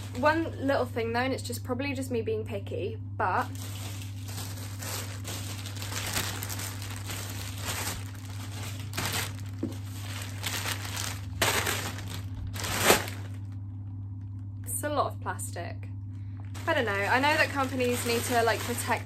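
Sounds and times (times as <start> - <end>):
plastic bags crinkling: 0.0 - 0.4, 3.4 - 14.4, 16.4 - 19.0.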